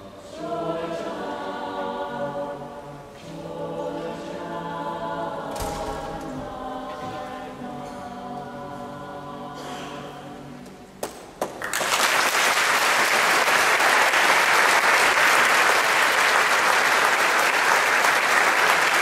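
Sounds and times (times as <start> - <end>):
choir singing: 0.0 - 11.0
audience applauding: 11.4 - 19.0.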